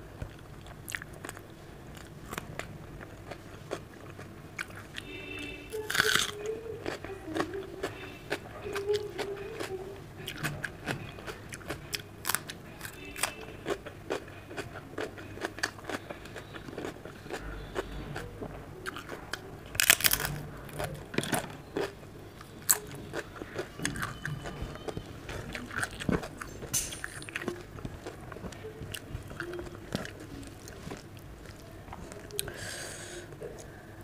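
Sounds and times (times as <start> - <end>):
chewing and mouth clicks: 5.8 - 32.6.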